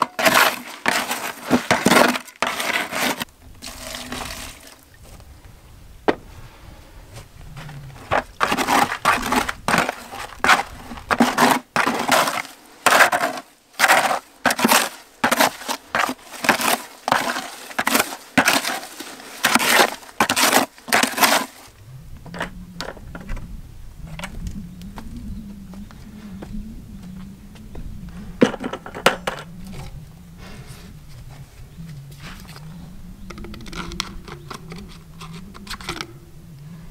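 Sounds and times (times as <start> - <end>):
tool scraping wet sediment in bucket: 0.0 - 4.8, 8.1 - 21.7.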